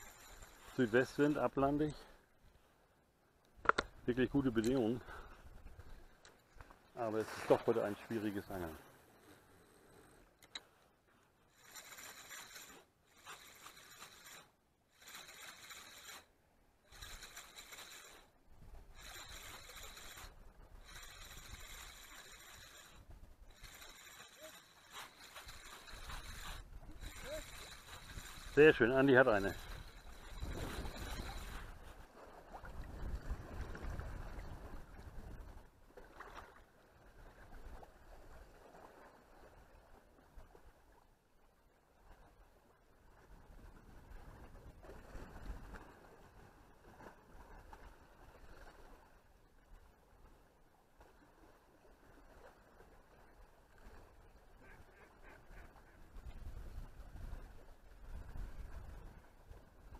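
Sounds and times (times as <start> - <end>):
spinning reel being cranked: 0.0 - 0.8, 11.5 - 16.3, 16.9 - 18.3, 19.0 - 31.7
sea water lapping around legs: 18.9 - 40.9
wind rumble on microphone: 29.4 - 35.7, 43.2 - 48.9, 55.5 - 59.9.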